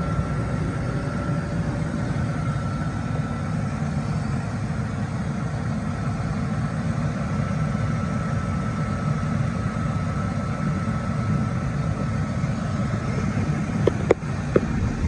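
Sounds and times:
faint high whine: 0:00.0 - 0:15.0
truck engine idling: 0:00.0 - 0:15.0.

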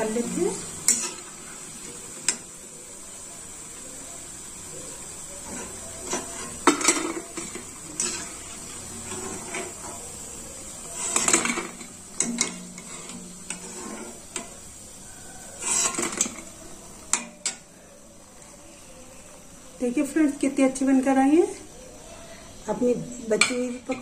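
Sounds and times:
oil sizzling: 0:00.0 - 0:24.0
metal skimmer scraping a pan: 0:00.1 - 0:02.5, 0:05.4 - 0:17.6.

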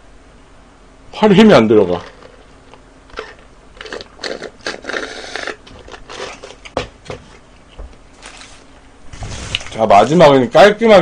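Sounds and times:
paper wrappers crinkling: 0:08.2 - 0:10.2.

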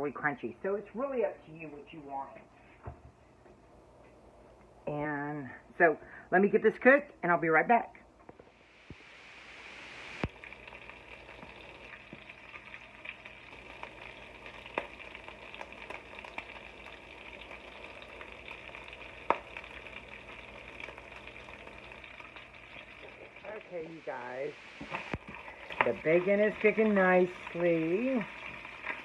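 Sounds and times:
bacon sizzling in a skillet: 0:08.6 - 0:23.7, 0:24.3 - 0:29.0.

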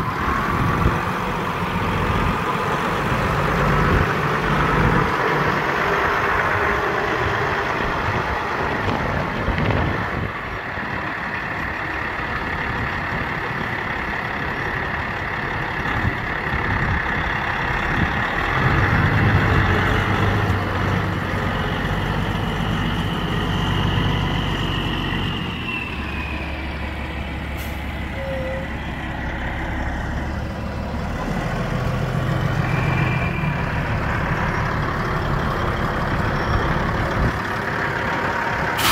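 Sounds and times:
truck diesel engine idling: 0:00.0 - 0:38.9.

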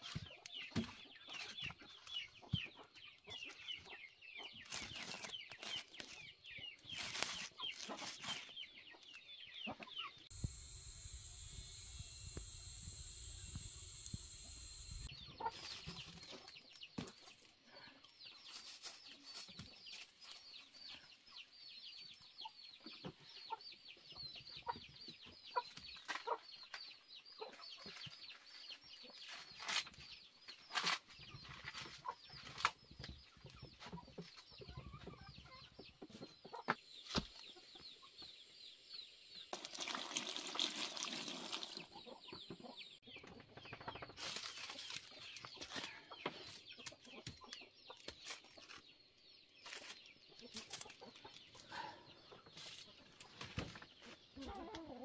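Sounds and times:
chickens clucking: 0:00.0 - 0:10.3, 0:15.0 - 0:17.2, 0:31.1 - 0:38.3, 0:41.8 - 0:48.9, 0:49.6 - 0:55.0
chicks cheeping: 0:00.1 - 0:39.5, 0:41.8 - 0:55.0.

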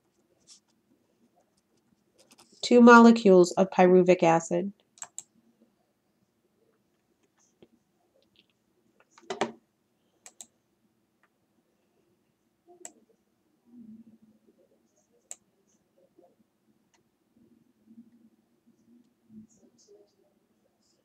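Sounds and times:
faint clicks and taps: 0:06.7 - 0:09.6.

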